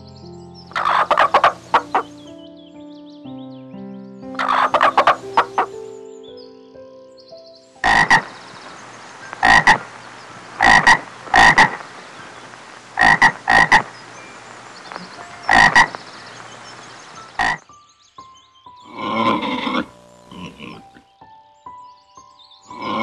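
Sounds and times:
frog croaking: 0:00.7 - 0:02.3, 0:04.3 - 0:05.8, 0:07.8 - 0:08.6, 0:09.2 - 0:14.1, 0:14.8 - 0:17.7, 0:18.8 - 0:21.2, 0:22.7 - 0:23.0.

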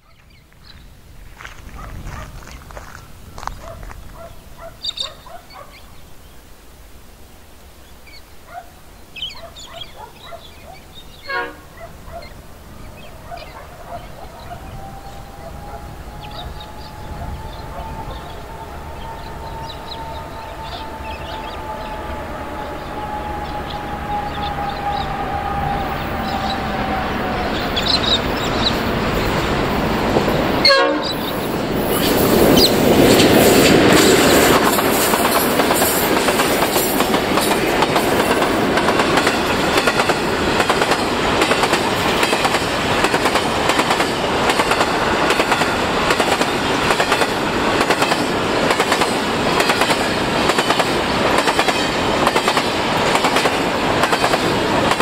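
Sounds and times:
diesel locomotive engines: 0:08.8 - 0:55.0
train horn: 0:11.2 - 0:12.2, 0:12.9 - 0:28.7, 0:30.6 - 0:31.4
wheels clacking over rail joints: 0:26.4 - 0:55.0.

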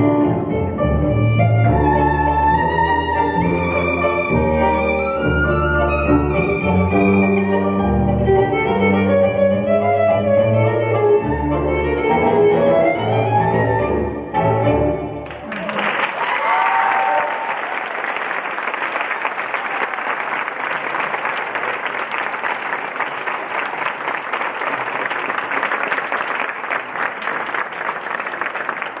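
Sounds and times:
tango music with violins: 0:00.0 - 0:15.3
audience applauding: 0:15.2 - 0:29.0.

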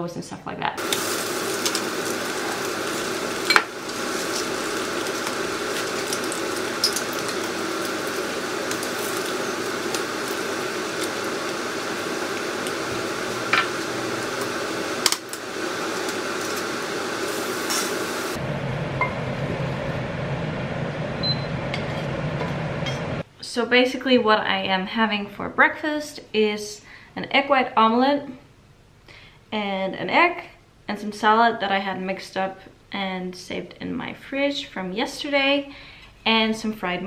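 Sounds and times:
omelet sizzling in a pan: 0:00.8 - 0:18.4.

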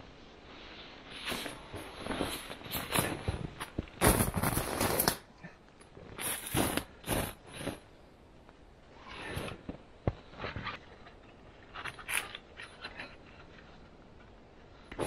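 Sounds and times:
clothing rustling and swishing: 0:00.0 - 0:15.0
footsteps crunching in snow: 0:01.1 - 0:05.2.

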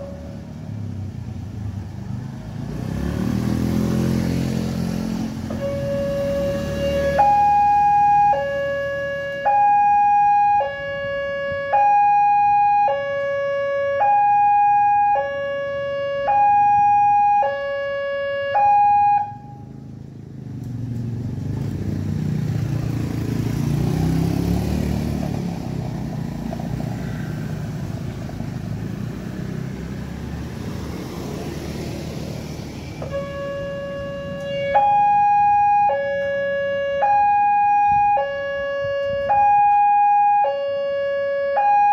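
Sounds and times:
road traffic rumble: 0:00.0 - 0:41.9
level crossing alarm tones: 0:05.6 - 0:19.7, 0:33.1 - 0:41.9.

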